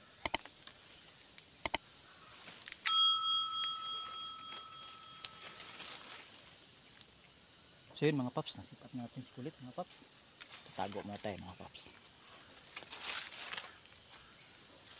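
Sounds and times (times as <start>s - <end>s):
mouse clicking: 0.2s - 0.4s
bright bell ding: 2.8s - 5.5s.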